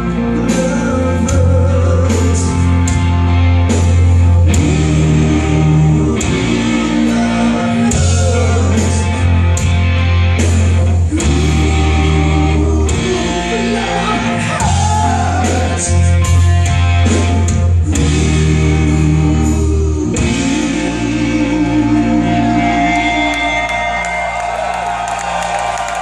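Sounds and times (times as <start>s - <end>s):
person singing: 0.0s - 3.0s, 4.5s - 9.3s, 11.1s - 16.5s, 17.1s - 24.2s
live rock band: 0.0s - 26.0s.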